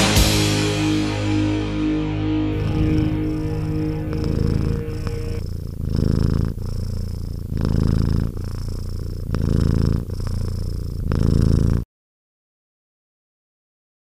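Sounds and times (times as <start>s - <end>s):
cat purring: 2.5s - 11.9s.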